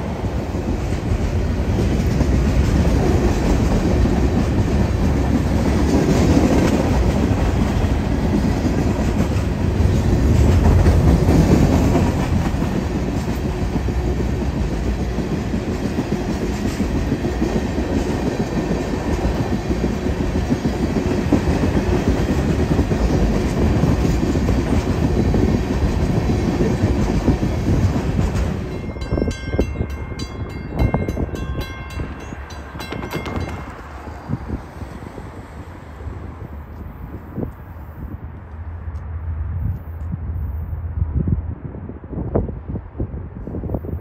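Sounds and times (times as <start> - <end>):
freight train wheels on rails: 0.0 - 44.0
crossing bell ringing: 28.4 - 35.1.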